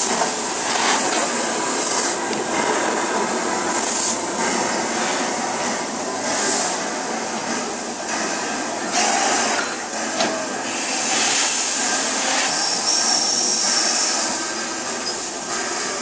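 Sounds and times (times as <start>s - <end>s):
locomotive engine running: 0.0s - 16.0s
steam locomotive exhaust chuffing: 0.0s - 16.0s.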